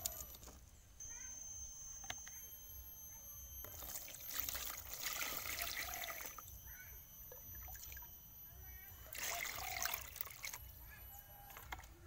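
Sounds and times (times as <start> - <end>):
water pouring into plastic tub: 3.9 - 6.4, 9.1 - 10.6.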